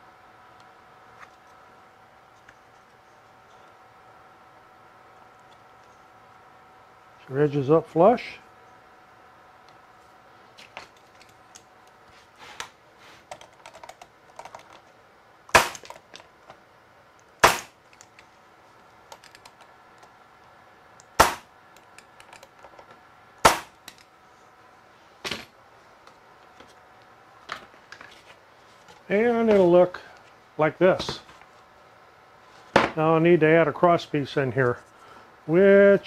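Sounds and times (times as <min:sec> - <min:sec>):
pneumatic stapler firing: 0:15.5 - 0:15.9, 0:17.4 - 0:17.8, 0:21.2 - 0:21.5.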